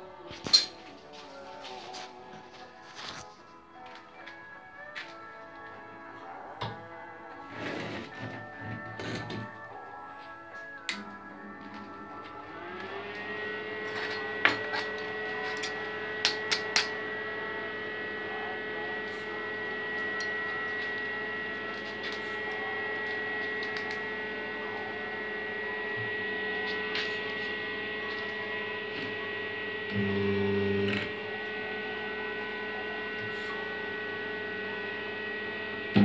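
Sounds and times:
transformer humming: 0:10.8 - 0:36.0.

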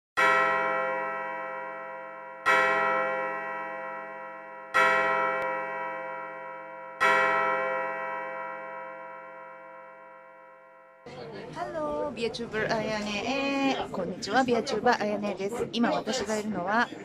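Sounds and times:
bell ringing: 0:00.2 - 0:11.1.

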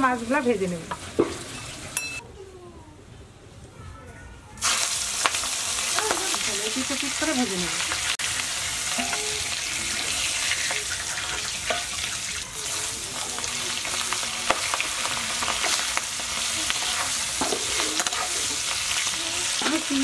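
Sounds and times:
prawns sizzling in hot oil: 0:00.0 - 0:02.0, 0:04.6 - 0:20.0
metal spatula scraping pan: 0:14.6 - 0:19.9.

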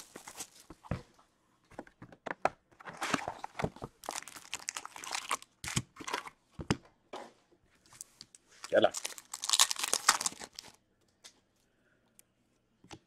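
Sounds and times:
cardboard box handled and opened: 0:00.0 - 0:01.1
cellophane crinkling and tearing: 0:03.9 - 0:06.3, 0:08.0 - 0:10.8.

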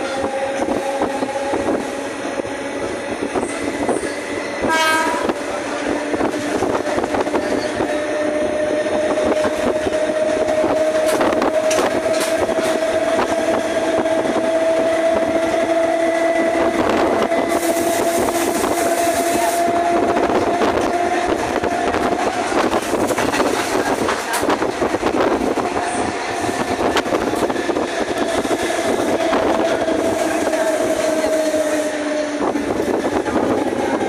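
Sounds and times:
train motor whine: 0:00.0 - 0:34.0
train horn: 0:04.6 - 0:05.6, 0:10.8 - 0:22.2
wheels clicking over rails: 0:05.4 - 0:19.0.

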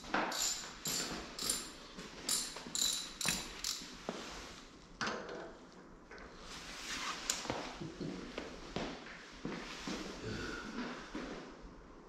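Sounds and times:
ratchet wrench clicking: 0:00.3 - 0:03.9.

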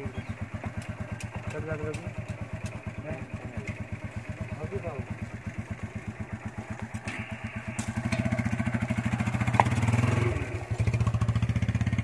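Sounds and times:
motorcycle engine idling: 0:00.0 - 0:12.0.

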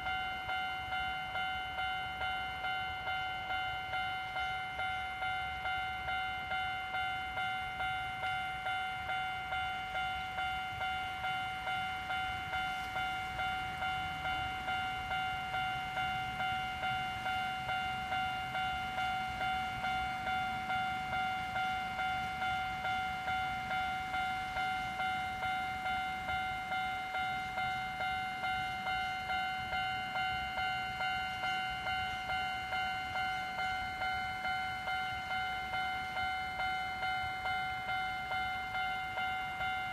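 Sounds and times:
level crossing warning bell: 0:00.0 - 0:39.9.

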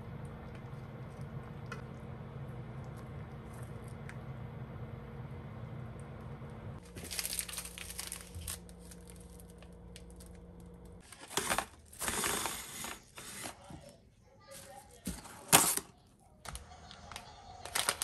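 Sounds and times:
low steady hum: 0:00.0 - 0:18.0
plastic tearing: 0:06.8 - 0:10.4, 0:11.0 - 0:13.6, 0:17.6 - 0:18.0
plastic packaging crinkling: 0:06.8 - 0:13.5, 0:17.1 - 0:18.0.

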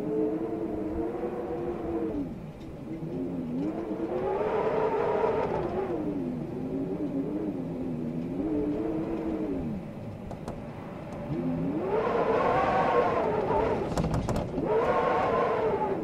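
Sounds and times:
blizzard wind howling: 0:00.0 - 0:16.0
faint clicks: 0:08.1 - 0:11.5.

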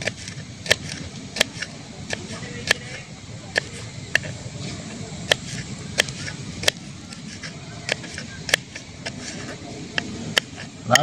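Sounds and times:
knife tapping wooden board: 0:00.0 - 0:04.3, 0:05.3 - 0:11.0.

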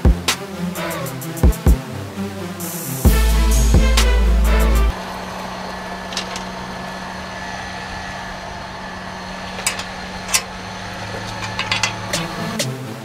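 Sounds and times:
low mechanical hum: 0:03.1 - 0:12.7
metal hand tools clicking: 0:11.1 - 0:12.7.

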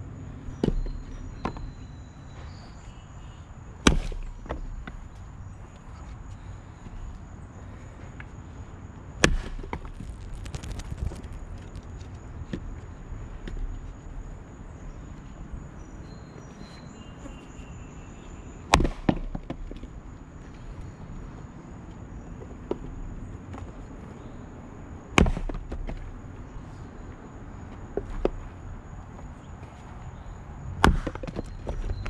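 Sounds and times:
axe splitting firewood: 0:03.8 - 0:05.0, 0:09.2 - 0:11.3, 0:18.7 - 0:19.8, 0:25.1 - 0:26.1, 0:30.8 - 0:32.0.

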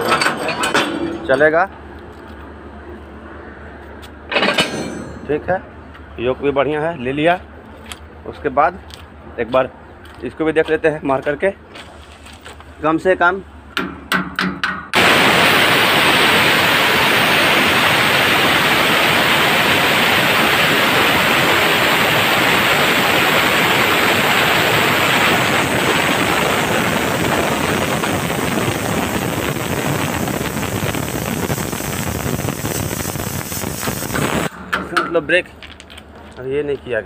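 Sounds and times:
compressed air hissing from brakes: 0:30.8 - 0:34.5.

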